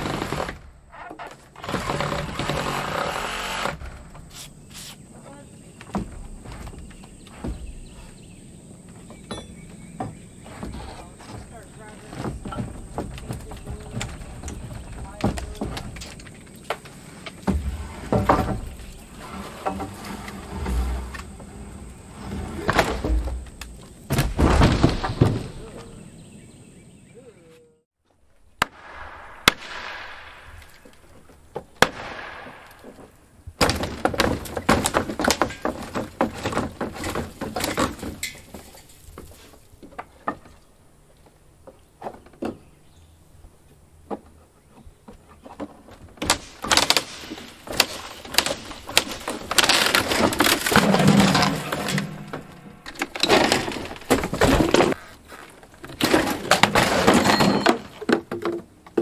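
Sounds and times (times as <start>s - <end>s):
wooden roof framing cracking: 0.0s - 4.4s, 8.8s - 25.9s, 29.6s - 40.6s, 45.0s - 59.0s
debris clattering: 10.7s - 25.9s, 31.8s - 40.5s, 45.8s - 59.0s.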